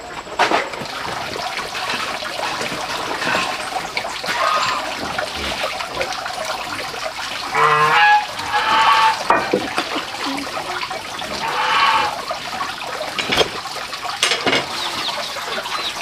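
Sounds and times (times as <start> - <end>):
running water rushing: 0.0 - 16.0
poultry calling: 4.2 - 5.0, 7.5 - 9.3, 10.6 - 12.4.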